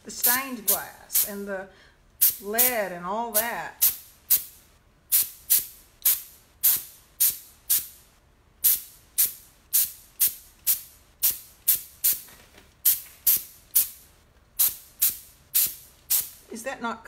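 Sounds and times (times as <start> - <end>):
spray gun hissing spurts: 14.6 - 16.4.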